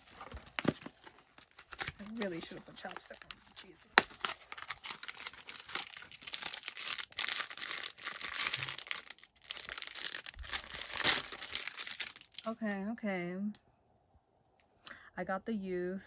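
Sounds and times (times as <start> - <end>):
foil wrapper crinkling and tearing: 0.0 - 12.6.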